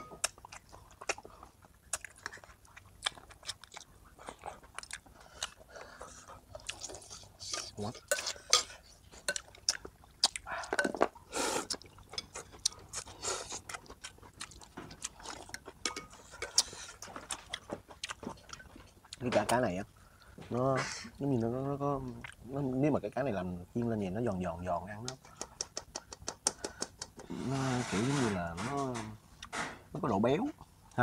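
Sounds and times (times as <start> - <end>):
chewing and crunching food: 0.0 - 20.6
chopsticks clicking on bowls: 25.1 - 27.2.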